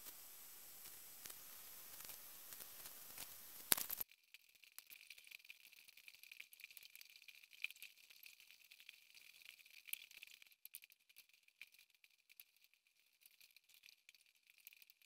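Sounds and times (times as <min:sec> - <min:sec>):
faint high hiss: 0:00.0 - 0:04.0
crackling ticks: 0:00.0 - 0:15.0.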